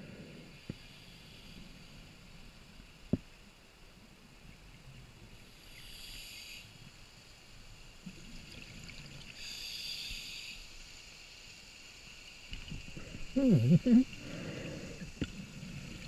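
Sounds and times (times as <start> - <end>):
scuba regulator hissing inhalations: 5.7 - 6.8, 9.4 - 10.8, 13.0 - 16.0
bubbling of exhaled air: 12.8 - 16.0.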